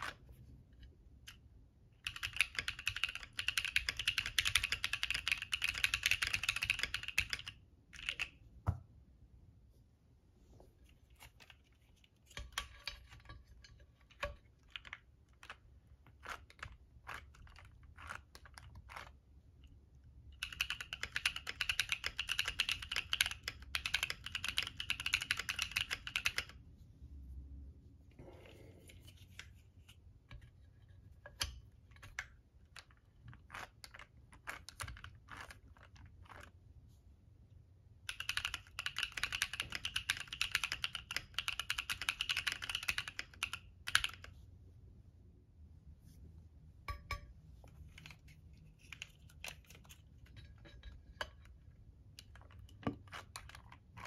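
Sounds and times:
mechanical keyboard typing: 2.0s - 8.3s, 20.4s - 26.6s, 38.1s - 44.3s.

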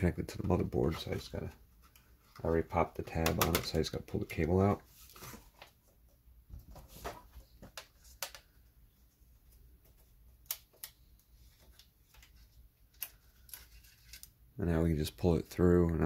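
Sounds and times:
faint clicks and taps: 0.3s - 4.5s.

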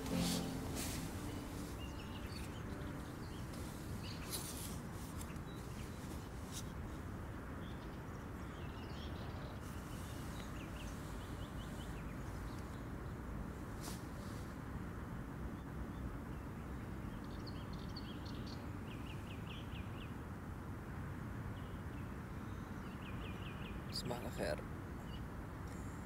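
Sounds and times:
sleeping bag rustling: 0.0s - 7.0s
birds chirping faintly: 0.0s - 13.2s
low background noise: 0.0s - 26.0s.

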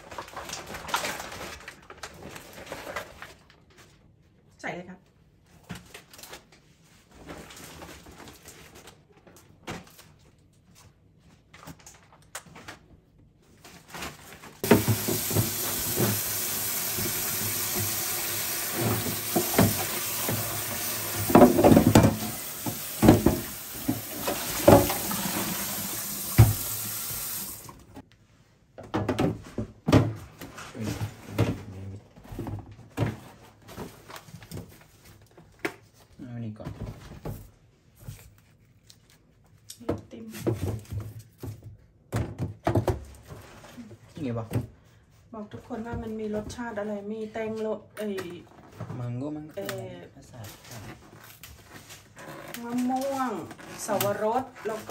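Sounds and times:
tap water rushing: 14.6s - 27.9s.

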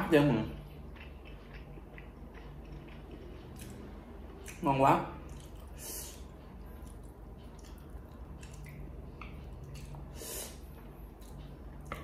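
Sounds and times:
low steady hum: 0.0s - 12.0s
wet chewing: 0.7s - 4.6s, 5.2s - 10.1s.

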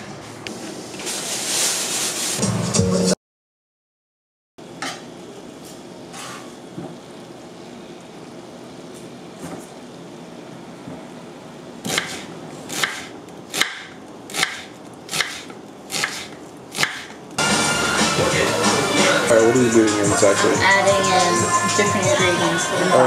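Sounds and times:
knife cutting onion on board: 11.8s - 17.2s.

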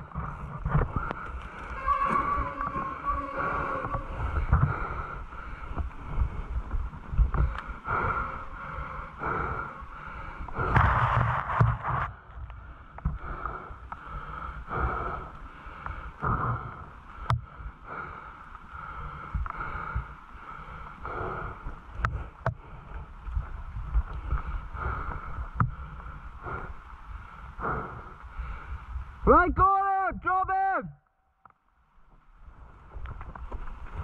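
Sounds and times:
wind rumble on microphone: 0.0s - 9.5s, 21.0s - 29.3s.

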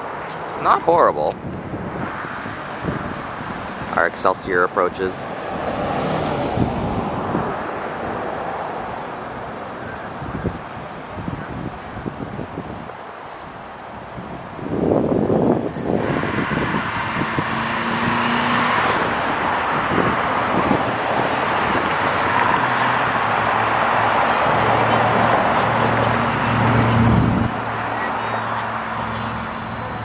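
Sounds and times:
road noise: 0.0s - 30.0s
bus engine hum: 18.9s - 30.0s.

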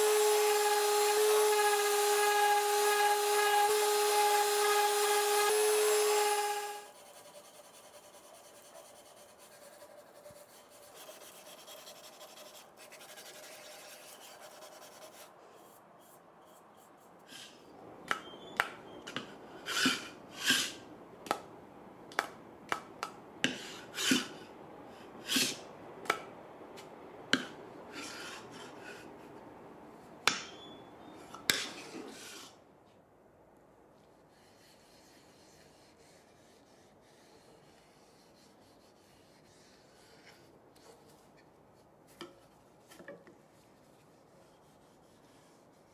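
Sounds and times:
sandpaper rubbing on wood: 0.0s - 17.5s, 34.3s - 40.5s.

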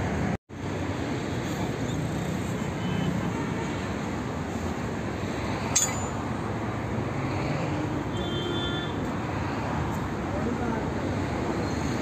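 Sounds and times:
traffic hum: 0.0s - 12.0s
metal tool clinking on wheel hub: 5.6s - 6.4s.

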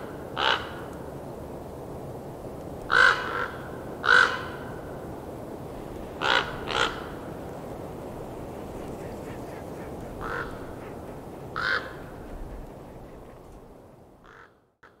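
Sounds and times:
low rushing background: 5.1s - 14.3s
bird calling: 6.2s - 14.5s.

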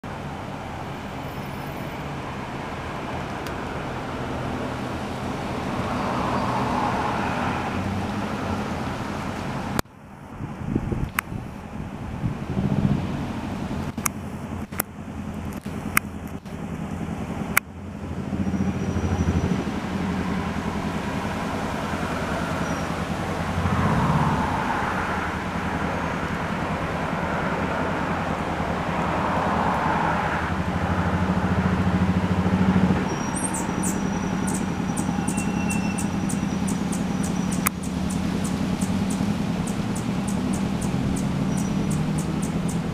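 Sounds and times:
road traffic rumbling: 0.0s - 42.9s
fast high ticks: 33.6s - 42.9s.

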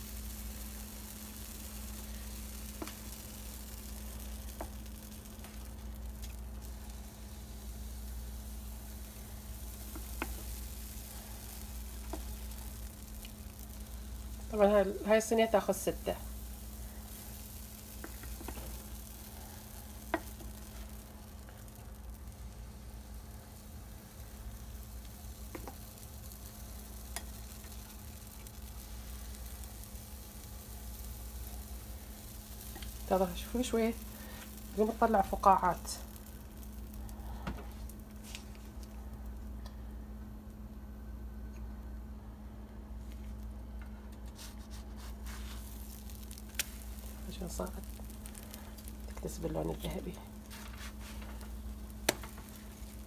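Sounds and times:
batter sizzling on a griddle: 0.0s - 53.0s
steady low hum: 0.0s - 53.0s.

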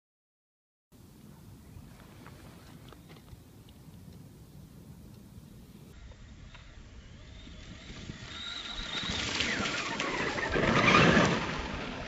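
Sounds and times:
electric motor whining: 5.9s - 12.0s.

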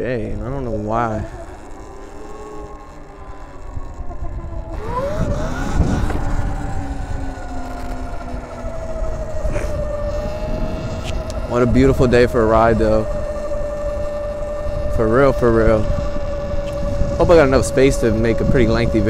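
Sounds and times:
electric motorbike motor whining: 0.0s - 19.0s
wind and tyre rumble: 0.0s - 19.0s.

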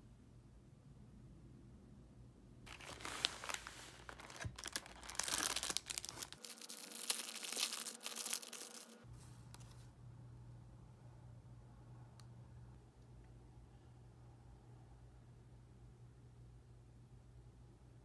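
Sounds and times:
plastic wrapper crinkling and tearing: 2.7s - 9.0s.

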